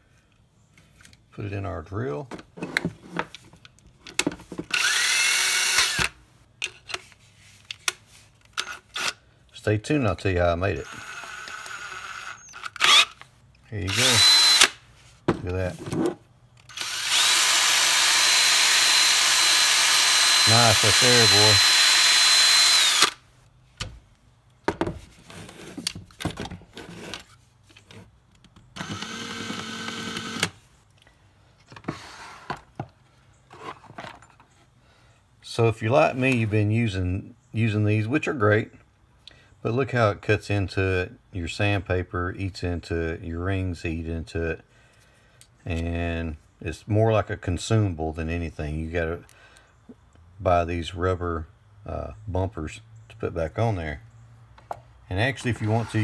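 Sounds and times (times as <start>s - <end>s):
power drill motor spinning: 4.7s - 6.2s, 10.8s - 13.2s, 13.9s - 14.8s, 16.6s - 23.2s, 28.8s - 30.6s, 55.4s - 56.0s.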